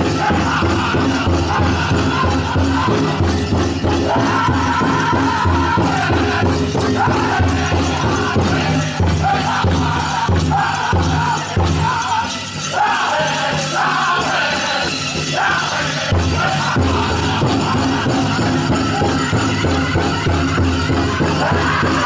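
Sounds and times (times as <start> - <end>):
big drum beaten steadily: 0.0 - 22.0
drum group singing: 0.0 - 22.0
jingling leg bells: 0.0 - 22.0.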